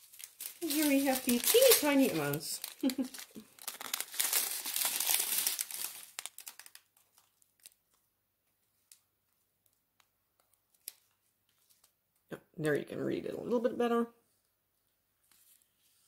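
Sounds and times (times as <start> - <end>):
plastic bags crinkling: 0.0 - 8.0.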